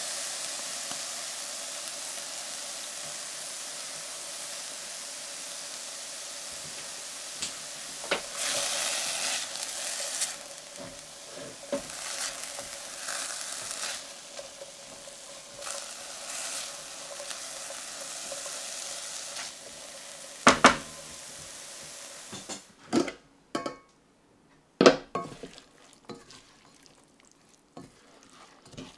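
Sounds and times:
vegetables sizzling in a pan: 0:00.0 - 0:22.8, 0:25.1 - 0:28.9
spatula scraping a pan: 0:08.0 - 0:21.5, 0:25.2 - 0:28.9.

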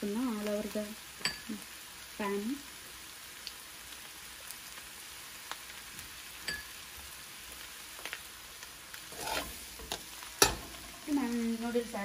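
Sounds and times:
food sizzling in a pan: 0:00.0 - 0:12.0
metal spoon clicking on pan: 0:06.5 - 0:06.7, 0:09.2 - 0:10.7
spoon scraping pan: 0:09.0 - 0:11.1.

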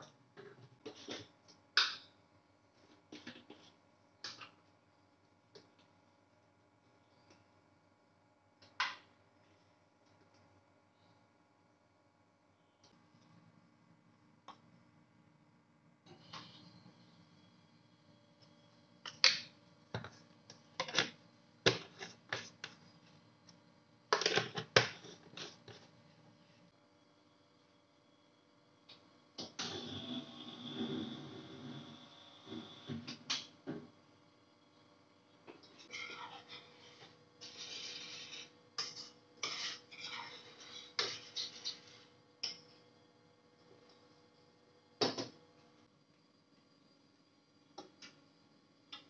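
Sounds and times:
metal spoon scraping steel bowl: 0:35.8 - 0:41.9.

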